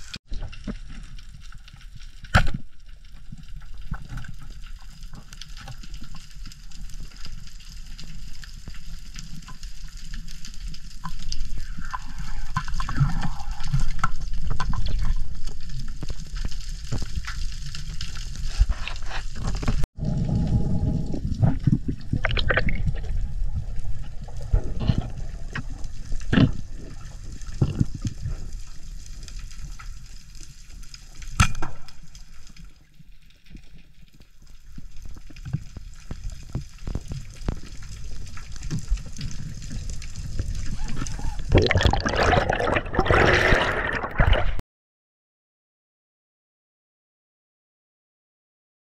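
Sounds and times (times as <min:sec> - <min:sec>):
underwater rush of water: 0:17.0 - 0:30.2, 0:34.7 - 0:44.6.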